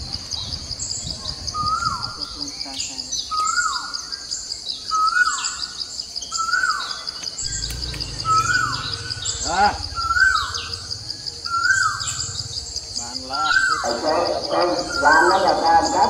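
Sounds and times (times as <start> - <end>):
high insect drone: 0.0 - 16.0
low rumble: 7.4 - 13.4.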